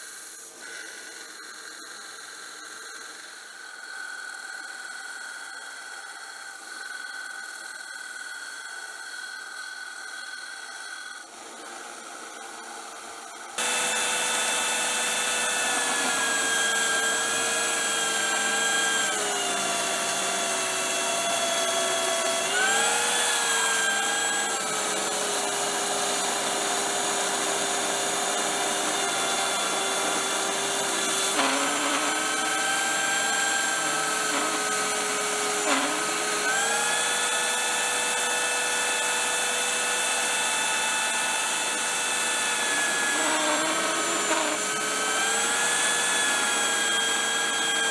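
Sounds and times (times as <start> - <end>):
belt sander grinding knife blade: 13.6 - 47.9.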